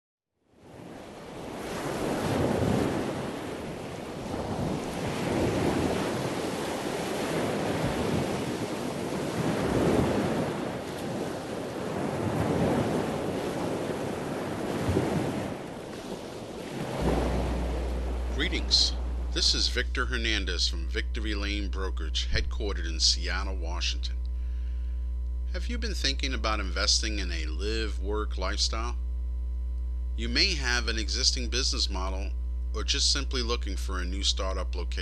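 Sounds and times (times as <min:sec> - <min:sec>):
ocean surf breaking: 0:00.6 - 0:24.0
wind buffeting microphone: 0:00.7 - 0:19.4.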